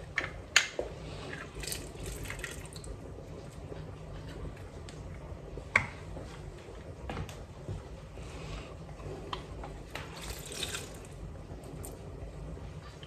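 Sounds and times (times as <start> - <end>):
juice dripping into a pot: 1.3 - 3.0, 9.9 - 12.0.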